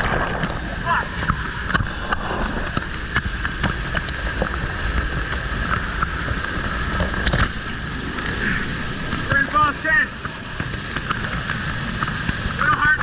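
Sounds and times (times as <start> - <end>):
creek water rushing: 0.0 - 13.0.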